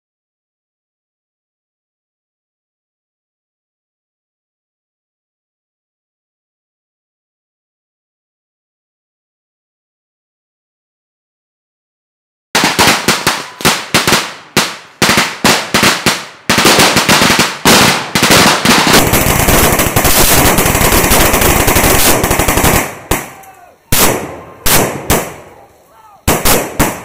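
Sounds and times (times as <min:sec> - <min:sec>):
rifle gunfire: 0:12.6 - 0:25.5, 0:26.3 - 0:27.0.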